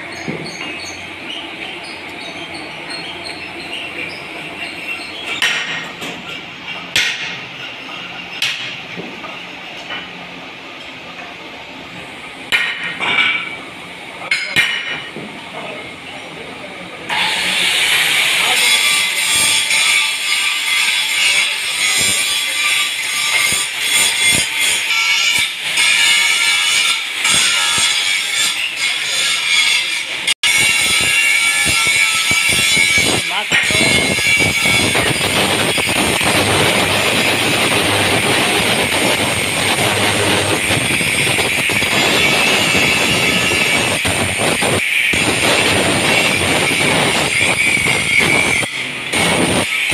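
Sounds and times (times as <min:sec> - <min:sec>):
angle grinder cutting steel: 0:17.1 - 0:49.9.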